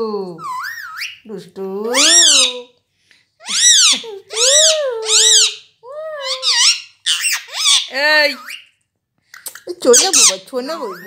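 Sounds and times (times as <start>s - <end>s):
parakeet calling: 0.4s - 1.3s, 1.9s - 2.7s, 3.4s - 8.8s, 9.5s - 11.0s.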